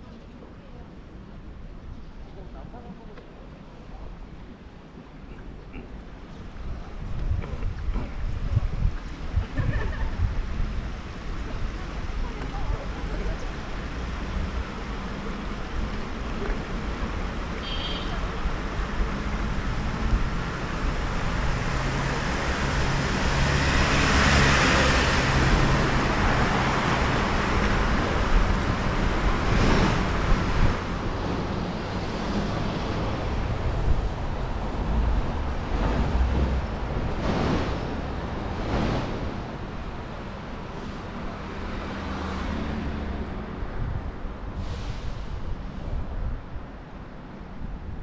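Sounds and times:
low traffic rumble: 0.0s - 48.0s
cars passing: 10.3s - 48.0s.

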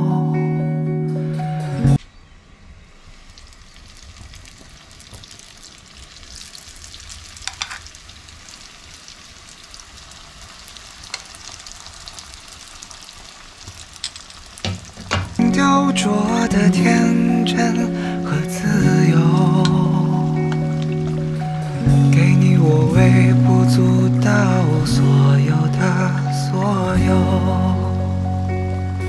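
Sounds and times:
spring rolls sizzling in oil: 3.2s - 15.4s.

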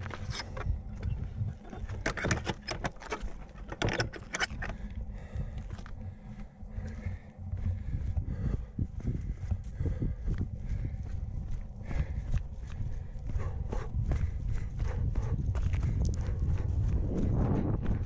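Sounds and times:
wooden gate knocks and clatter: 0.0s - 4.8s
running footsteps on stony path: 0.0s - 18.0s
wind buffeting microphone: 0.0s - 18.0s.

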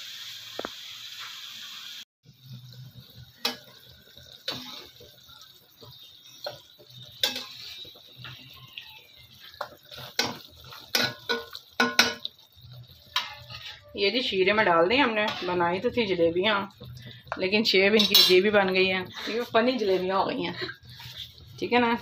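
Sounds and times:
faint oil sizzle: 0.0s - 22.0s.

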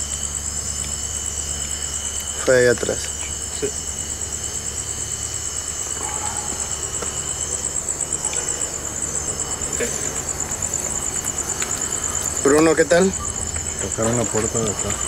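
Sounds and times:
crickets chirping: 0.0s - 15.0s
lower insect tone: 0.0s - 15.0s
faint ticks: 8.2s - 12.8s.

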